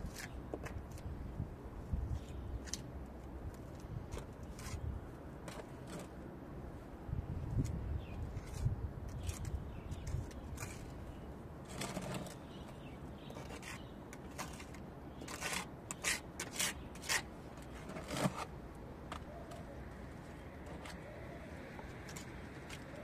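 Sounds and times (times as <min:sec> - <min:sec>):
trowel scraping mortar: 0:08.4 - 0:11.0, 0:11.6 - 0:12.5, 0:13.3 - 0:18.5.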